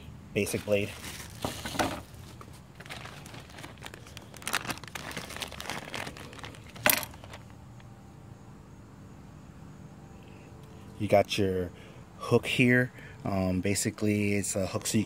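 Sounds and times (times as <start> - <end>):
plastic bag crinkling: 0.4 - 7.6.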